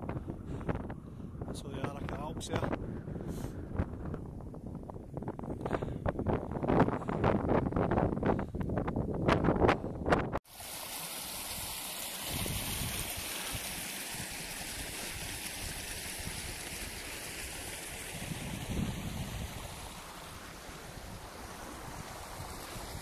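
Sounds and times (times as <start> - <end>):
wind gusts on microphone: 0.0 - 10.4, 12.3 - 13.7, 17.8 - 23.0
stream running over stones: 10.4 - 23.0.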